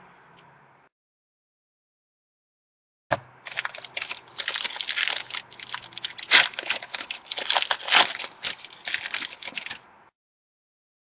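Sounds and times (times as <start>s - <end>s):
foil wrapper tearing and crinkling: 3.4s - 9.8s.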